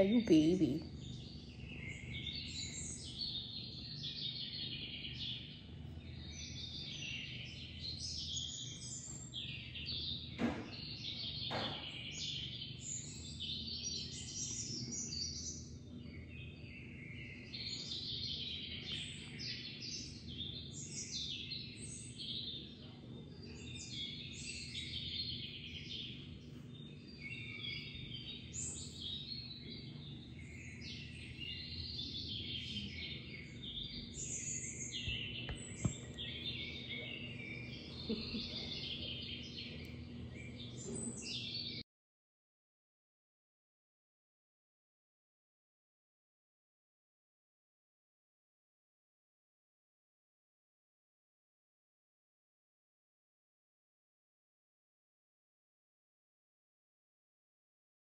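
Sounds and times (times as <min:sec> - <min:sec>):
small birds chirping: 0:00.0 - 0:41.8.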